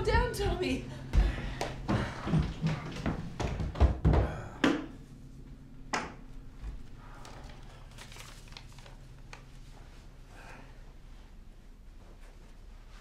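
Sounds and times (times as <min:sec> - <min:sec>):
low steady hum: 0:00.0 - 0:03.6, 0:04.2 - 0:13.0
people shuffling: 0:00.0 - 0:04.4.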